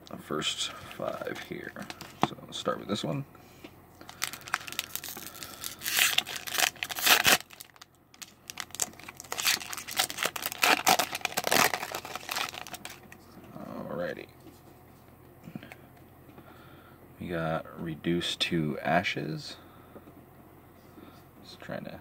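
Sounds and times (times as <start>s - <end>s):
foil wrapper tearing and crinkling: 4.0s - 13.1s.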